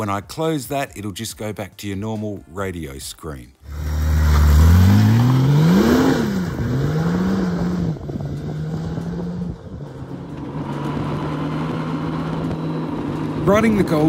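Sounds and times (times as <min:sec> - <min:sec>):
motorcycle engine accelerating: 0:03.6 - 0:14.0.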